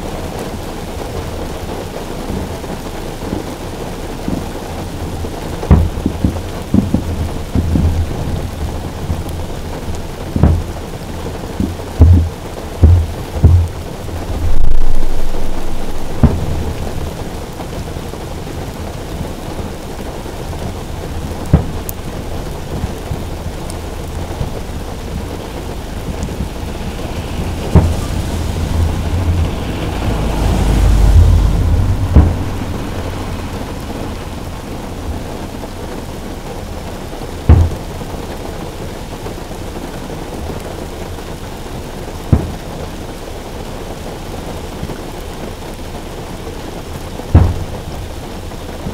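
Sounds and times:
rain on a car roof: 0.0 - 48.9
low rumble: 5.2 - 38.1, 47.3 - 48.4
firework shells booming: 11.6 - 17.4, 21.4 - 22.4, 25.2 - 30.2, 30.8 - 32.8, 37.5 - 37.9, 47.3 - 47.9.

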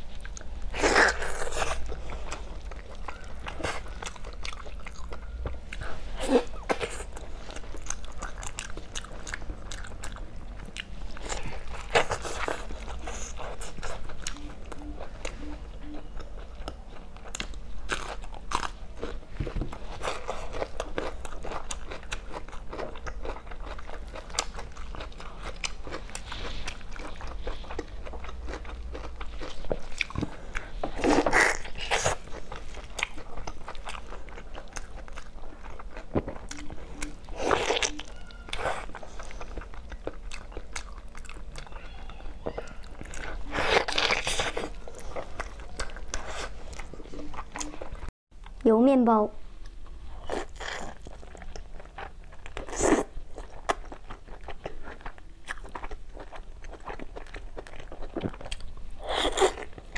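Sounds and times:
wet sticky chewing: 0.0 - 48.1, 49.6 - 59.9
crunching cucumber: 0.1 - 15.1, 16.0 - 47.9, 50.2 - 59.9.

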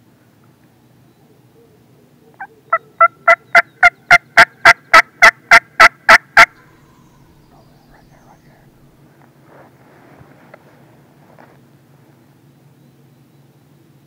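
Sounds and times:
turkey call yelps: 1.6 - 6.6.

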